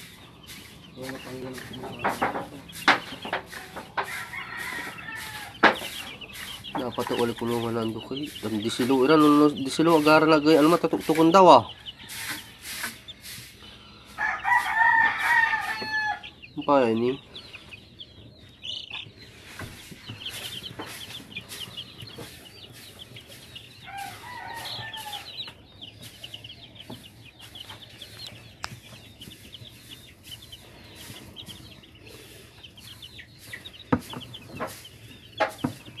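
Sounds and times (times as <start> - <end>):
chicks peeping: 0.0 - 36.0
sharp knocks: 1.5 - 4.2, 5.6 - 7.2.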